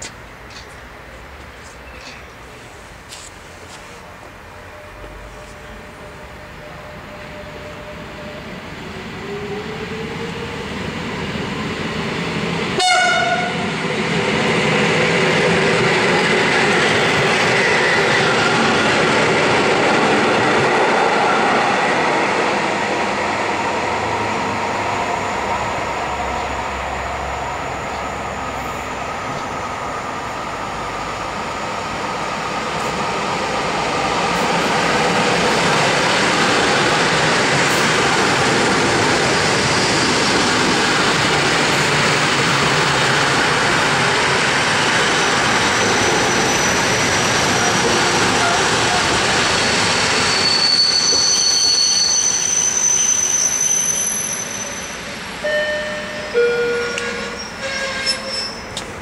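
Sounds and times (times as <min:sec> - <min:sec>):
electric train whine and wheel noise: 0:00.0 - 0:59.0
train horn blast: 0:12.8 - 0:13.7, 0:55.4 - 0:58.6.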